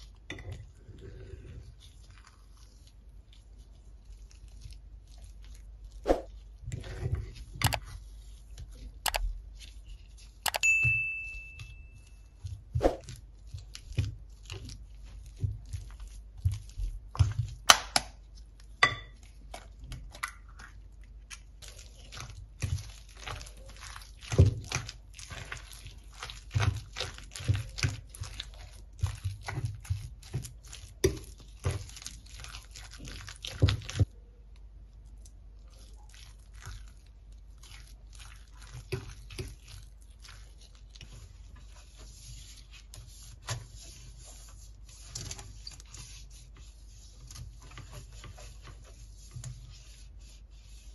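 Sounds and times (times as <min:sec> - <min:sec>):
pastry brush rubbing metal pan: 0:01.3 - 0:10.4, 0:36.0 - 0:50.9.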